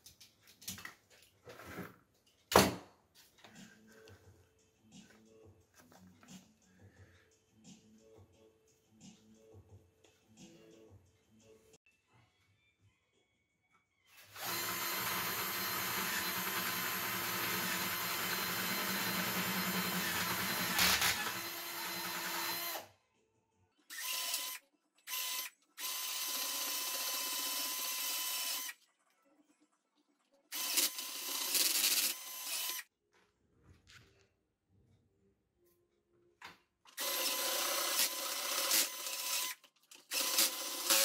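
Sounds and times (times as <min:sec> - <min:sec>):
power drill boring into plastic: 0:14.3 - 0:22.8, 0:37.0 - 0:41.0.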